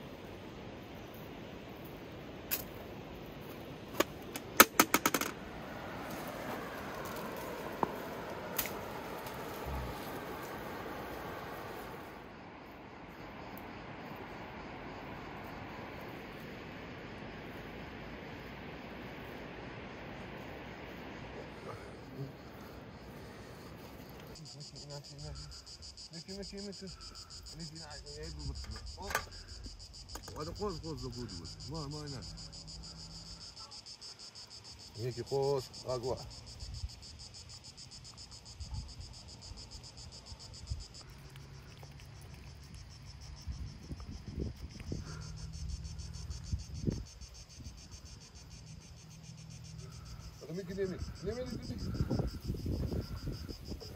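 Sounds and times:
insect chirring: 0.0 - 53.9
short low calls: 6.5 - 12.1.

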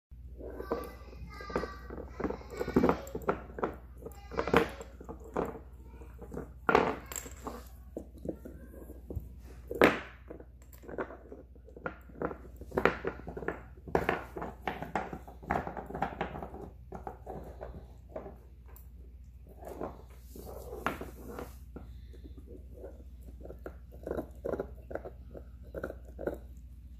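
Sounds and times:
puppy gnawing a chew bone: 21.9 - 26.9.

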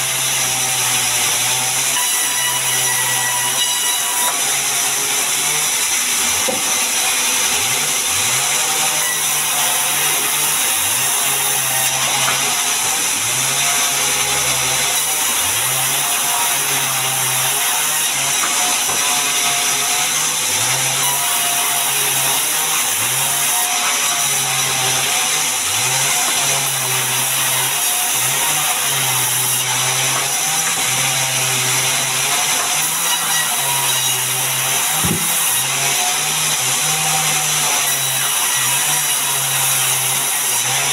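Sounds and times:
band saw ripping wood: 9.0 - 40.9.

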